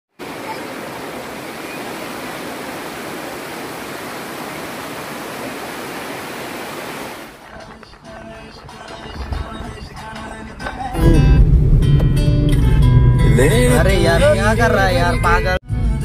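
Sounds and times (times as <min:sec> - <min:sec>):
stream water rushing over rocks: 0:00.1 - 0:07.5.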